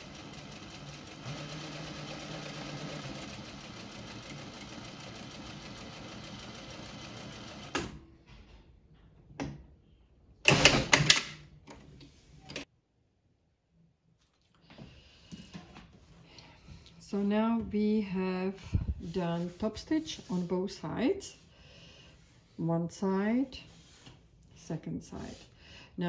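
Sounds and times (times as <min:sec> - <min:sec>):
sewing machine stitching: 0:00.0 - 0:08.0.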